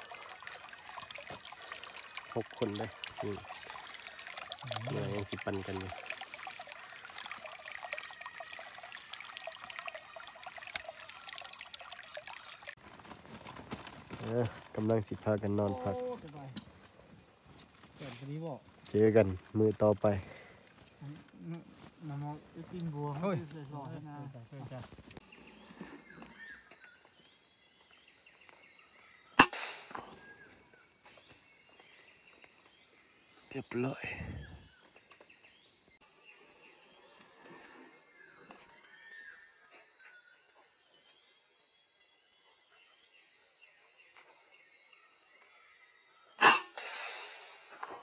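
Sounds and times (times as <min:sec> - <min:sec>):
high insect hum: 0:00.0 - 0:48.0
campfire crackling: 0:12.5 - 0:19.6
air rifle shot: 0:29.4 - 0:30.1, 0:46.4 - 0:47.9
sharp wood crack: 0:29.4 - 0:30.2.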